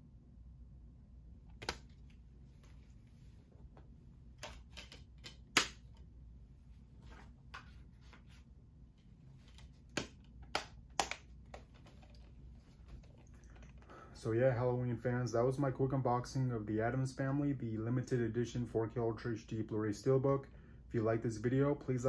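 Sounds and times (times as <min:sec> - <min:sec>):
disc case clicks and taps: 0:01.5 - 0:02.0, 0:04.4 - 0:05.8, 0:09.9 - 0:12.1.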